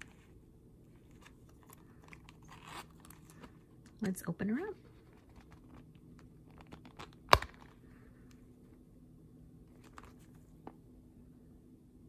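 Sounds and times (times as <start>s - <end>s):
leather wallet rustling: 1.0s - 3.8s, 4.9s - 7.8s.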